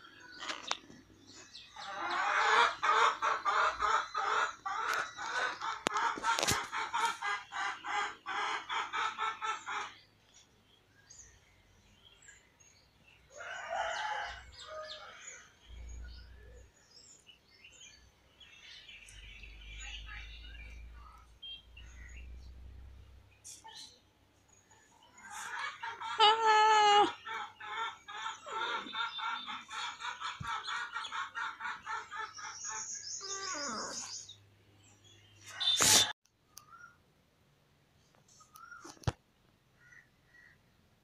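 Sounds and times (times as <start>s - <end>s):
loud repeated bird calls: 0.0s - 10.5s, 23.3s - 37.0s.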